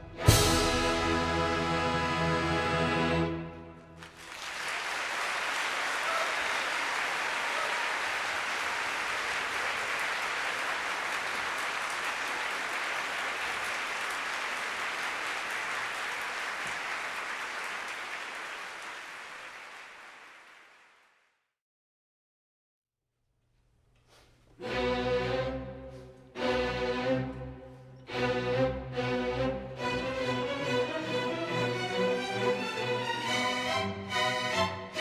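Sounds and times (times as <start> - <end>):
audience applause: 4.0 - 21.2.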